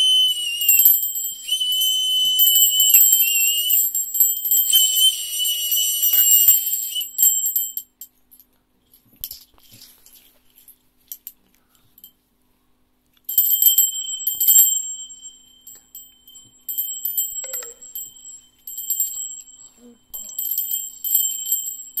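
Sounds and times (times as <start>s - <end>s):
bear bell ringing: 0.0s - 7.8s, 13.4s - 22.0s
faint bell clinks: 0.2s - 8.5s, 13.3s - 22.0s.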